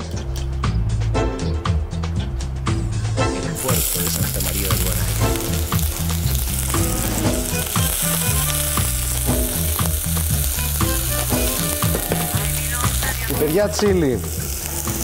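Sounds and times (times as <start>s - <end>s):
onion sizzling in oil: 3.6s - 15.0s.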